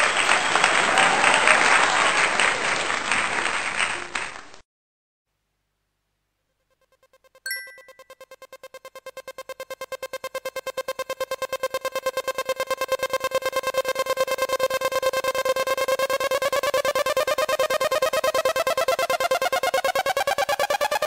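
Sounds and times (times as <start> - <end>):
rapid repeated synthesizer note: 8.2 - 21.0.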